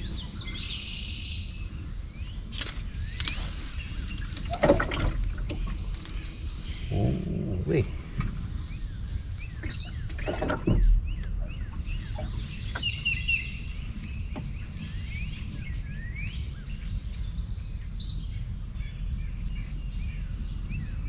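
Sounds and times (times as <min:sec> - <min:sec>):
birds chirping and calling: 0:00.0 - 0:21.0.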